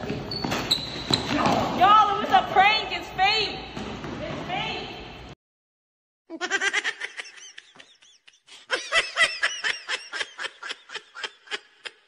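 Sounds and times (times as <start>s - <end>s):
person laughing hard: 6.3s - 12.0s.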